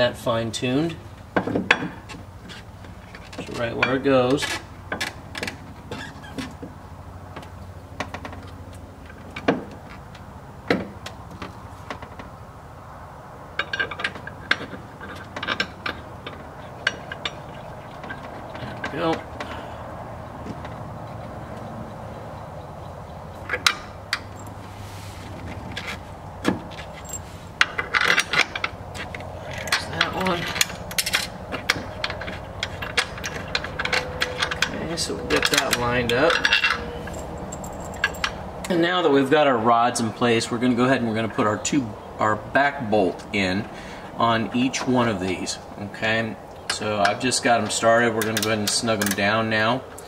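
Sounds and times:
metal rods and bolts clicking: 0:13.5 - 0:19.6, 0:23.3 - 0:24.6, 0:25.6 - 0:38.8, 0:46.6 - 0:50.0.

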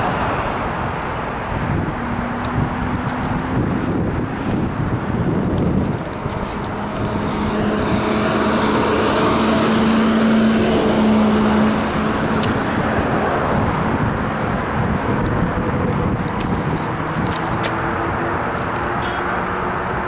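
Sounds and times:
road noise: 0:00.0 - 0:20.0
vehicle engine humming: 0:00.0 - 0:20.0.

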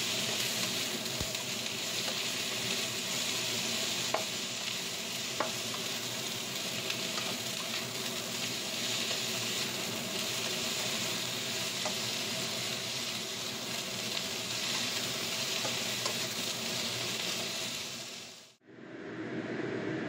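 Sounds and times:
vegetables sizzling in a wok: 0:00.0 - 0:18.6
low dull steady noise: 0:18.6 - 0:20.0.

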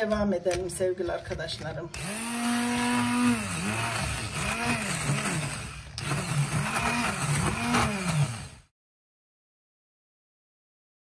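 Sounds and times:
electric stick blender whirring: 0:01.5 - 0:08.7.

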